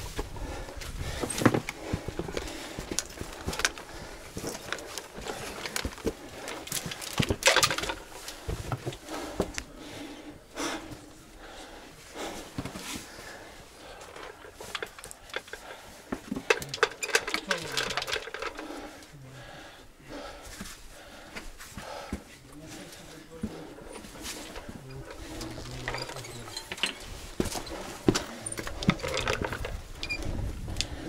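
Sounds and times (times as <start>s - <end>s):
heavy breathing: 0.0s - 31.0s
boots knocking and scraping on rock: 0.2s - 9.6s.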